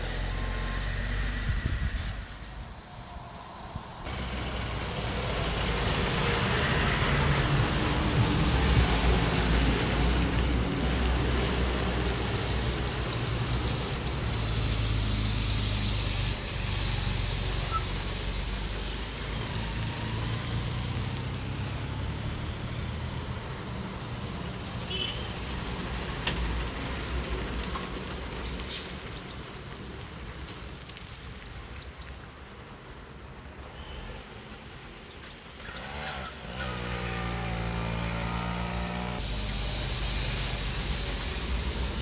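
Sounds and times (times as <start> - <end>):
diesel truck engine drone: 0.0 - 30.6, 35.7 - 42.0
hiss: 4.8 - 34.5, 38.4 - 42.0.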